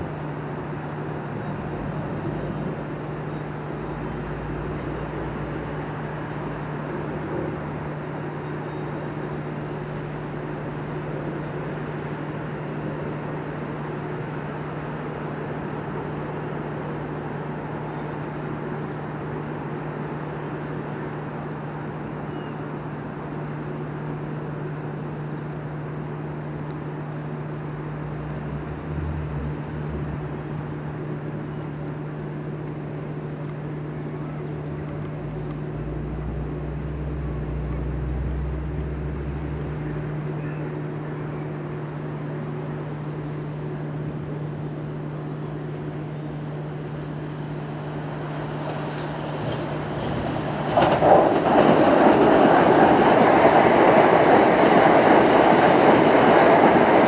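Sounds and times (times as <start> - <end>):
steady low hum: 0.0 - 57.0
deep rumble: 27.7 - 31.6, 34.1 - 40.8.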